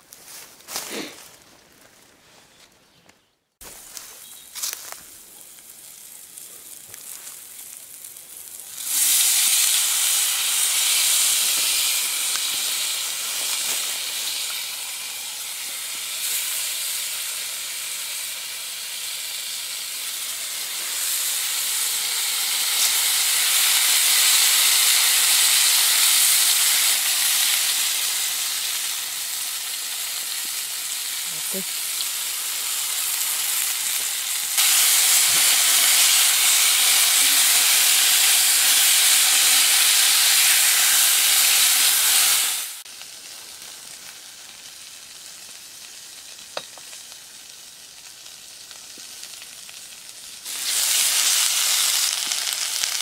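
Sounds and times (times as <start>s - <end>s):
potatoes sizzling in a pan: 3.6s - 53.0s.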